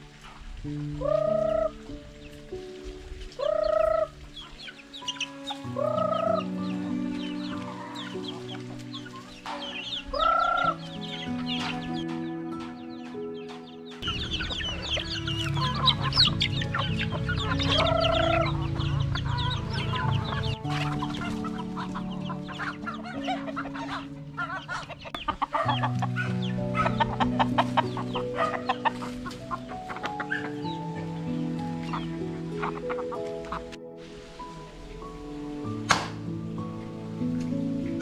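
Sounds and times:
chickens clucking: 0:00.0 - 0:38.0.

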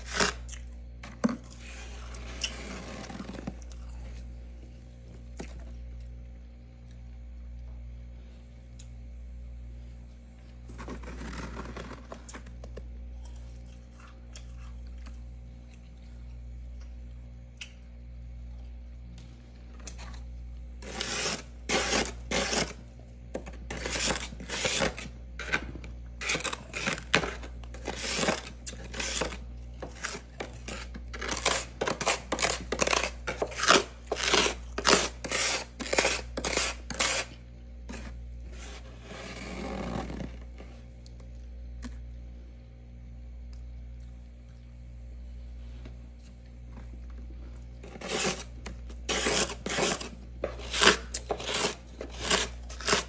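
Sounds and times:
freezer frost crunching: 0:00.0 - 0:06.2, 0:10.4 - 0:16.9, 0:19.4 - 0:42.1, 0:46.7 - 0:53.0
steady low hum: 0:00.0 - 0:53.0.

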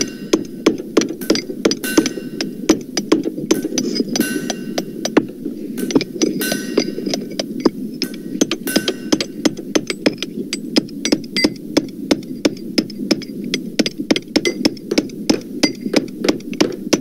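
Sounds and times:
deep hammer blows: 0:00.0 - 0:12.3
steady hum: 0:00.0 - 0:17.0.

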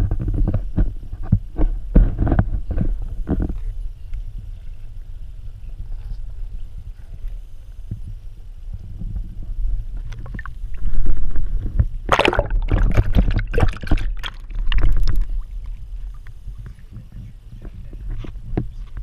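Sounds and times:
low dull rumble: 0:00.0 - 0:19.0
water sloshing and splashing: 0:10.1 - 0:16.3.

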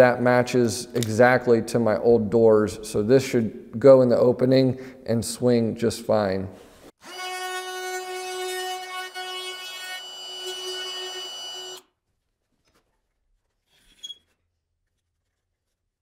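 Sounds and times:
router high whine: 0:07.1 - 0:11.8.

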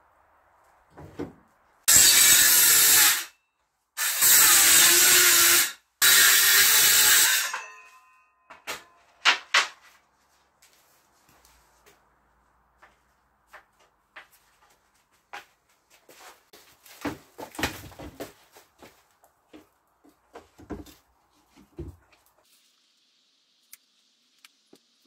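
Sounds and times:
circular saw cutting wood: 0:01.9 - 0:03.4, 0:04.0 - 0:07.6.

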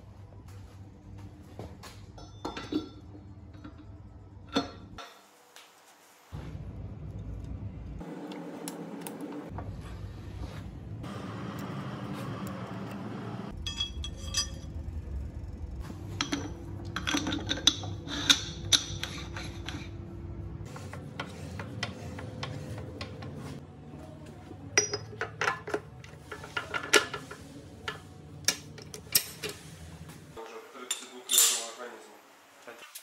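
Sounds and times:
steady low hum: 0:06.4 - 0:30.5
steel gears clinking and knocking: 0:13.5 - 0:20.0.

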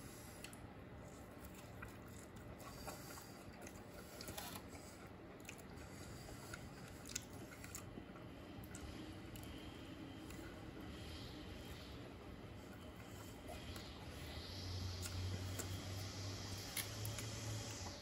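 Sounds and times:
chewing food crunches: 0:00.4 - 0:10.7.

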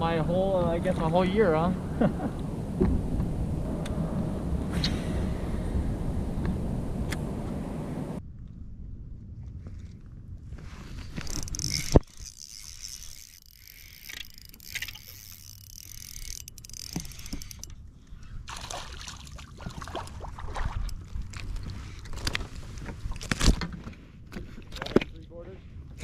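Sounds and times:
fishing reel rapid clicks: 0:11.2 - 0:17.7.

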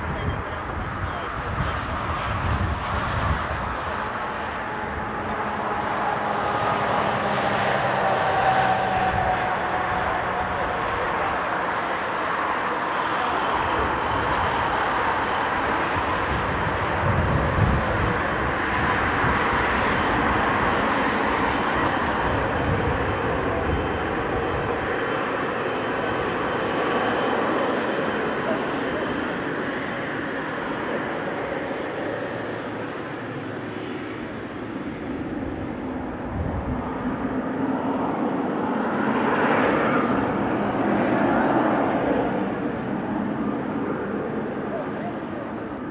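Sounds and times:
jet engines at taxi power: 0:00.0 - 0:45.9.

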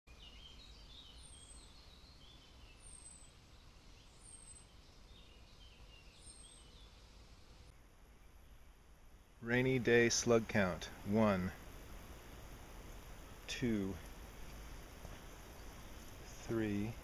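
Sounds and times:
low steady rumble: 0:07.0 - 0:17.0
bird twittering: 0:12.8 - 0:17.0.

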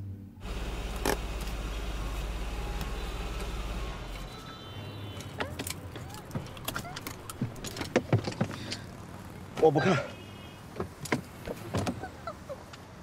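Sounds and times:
street noise: 0:00.0 - 0:13.0
car engine hum: 0:00.4 - 0:13.0.

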